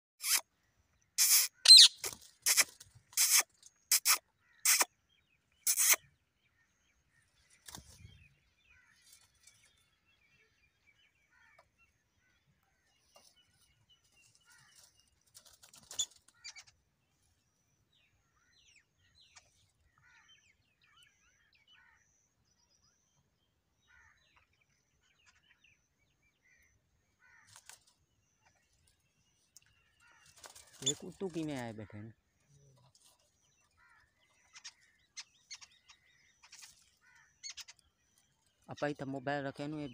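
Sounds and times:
parakeets screeching: 0:01.2 - 0:04.9.

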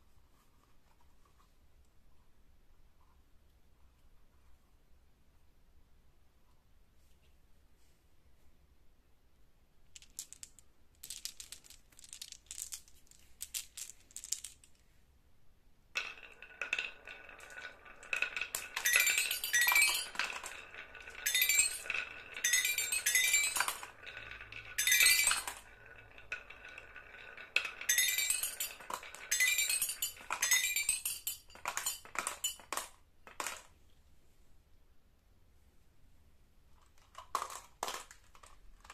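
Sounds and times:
marbles rolling on wood: 0:09.9 - 0:14.8, 0:15.9 - 0:33.7, 0:36.8 - 0:38.9
toy xylophone notes: 0:18.6 - 0:20.2, 0:21.2 - 0:23.8, 0:24.8 - 0:25.6, 0:27.9 - 0:32.6.

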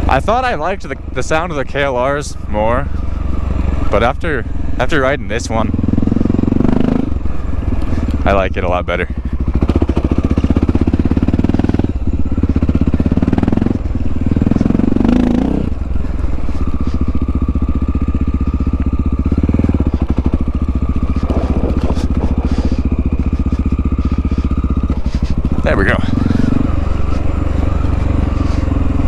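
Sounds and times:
motorcycle engine thumping: 0:09.0 - 0:29.0.

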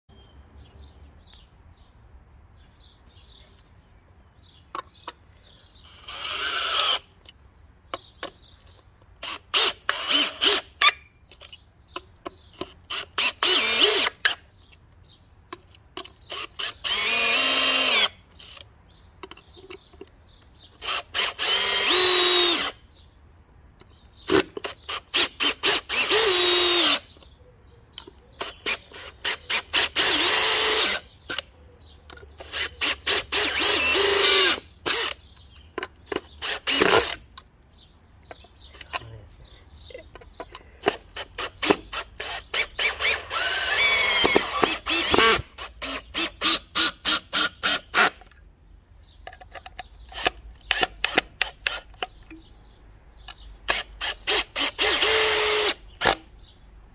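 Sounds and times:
cordless drill driving screws: 0:05.8 - 0:07.4, 0:09.2 - 0:11.6, 0:12.4 - 0:14.7, 0:16.0 - 0:18.7, 0:20.7 - 0:22.8, 0:24.2 - 0:27.3, 0:28.4 - 0:31.5, 0:32.3 - 0:37.3, 0:40.8 - 0:48.3, 0:50.0 - 0:52.2, 0:53.6 - 0:56.2.

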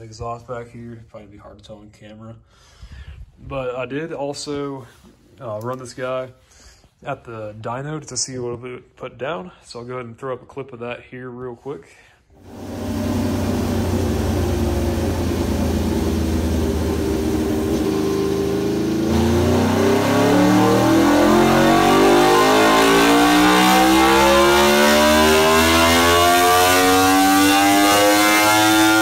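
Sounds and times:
motorcycle engine revving on dyno: 0:12.4 - 0:29.0.

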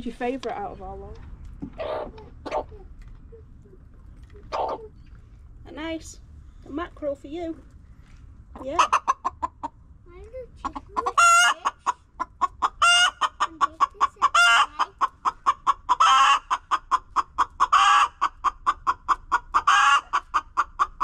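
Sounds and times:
hen clucking: 0:01.6 - 0:05.2, 0:08.5 - 0:09.8, 0:10.6 - 0:21.0
hen squawking: 0:01.8 - 0:02.8, 0:04.4 - 0:05.0, 0:10.7 - 0:18.3.

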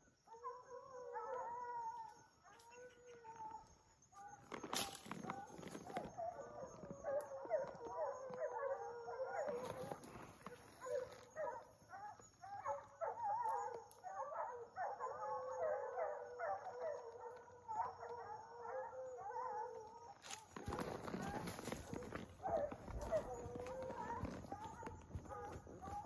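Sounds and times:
pack of hounds baying: 0:05.2 - 0:26.0.

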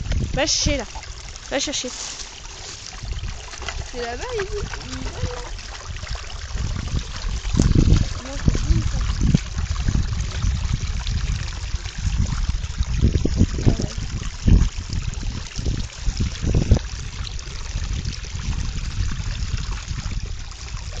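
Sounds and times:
dog splashing through water: 0:00.0 - 0:10.7
water trickling: 0:00.0 - 0:21.0.

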